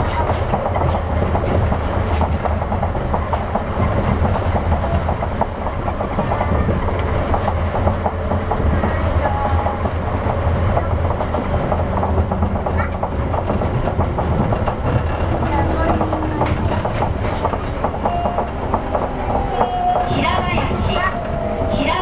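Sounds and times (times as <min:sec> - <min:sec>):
train running hum and rumble: 0:00.0 - 0:22.0.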